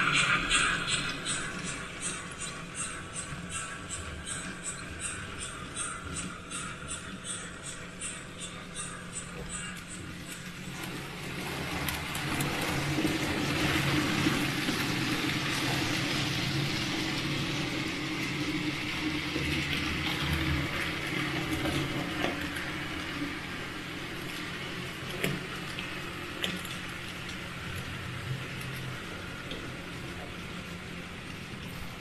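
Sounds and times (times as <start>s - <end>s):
small wheels rolling on rails: 8.7s - 32.0s
model train motor hum: 9.6s - 32.0s.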